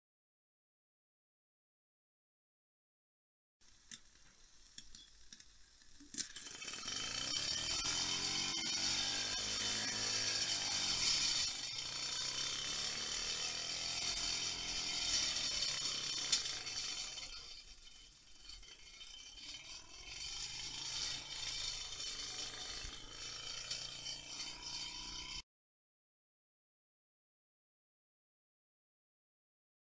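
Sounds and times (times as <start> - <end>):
whirring rising and falling: 6.4 - 18.0, 18.7 - 25.4.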